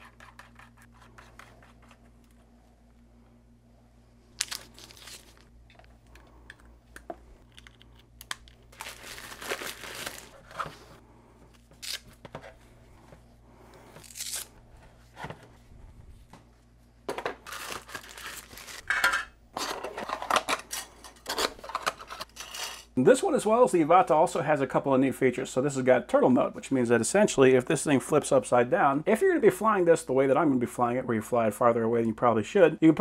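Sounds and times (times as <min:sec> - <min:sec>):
faint low hum: 0:00.0 - 0:29.1
packaging paper rustling and tearing: 0:04.4 - 0:05.5, 0:08.7 - 0:11.0, 0:17.4 - 0:18.9.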